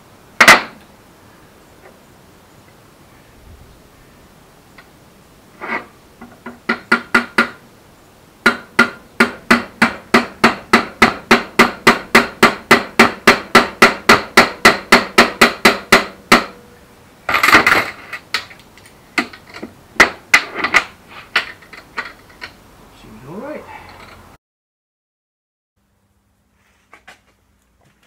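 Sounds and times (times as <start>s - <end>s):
hammer tapping on metal: 8.4s - 16.6s.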